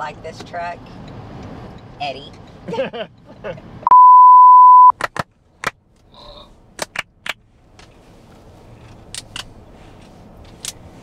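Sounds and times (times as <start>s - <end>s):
steady test tone beep: 3.8s - 4.9s.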